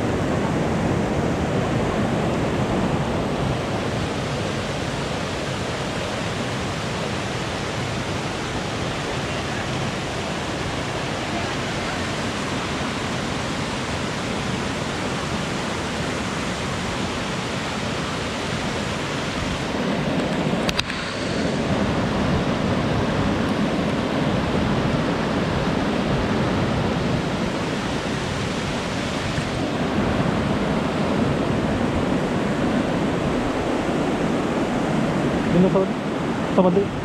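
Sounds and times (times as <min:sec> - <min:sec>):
waterfall rushing into pool: 0:00.0 - 0:37.0
brief click: 0:20.2 - 0:21.0.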